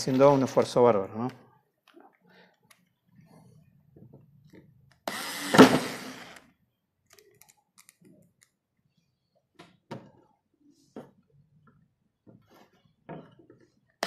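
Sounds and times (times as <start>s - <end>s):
cordless screwdriver driving screw: 5.0s - 6.4s.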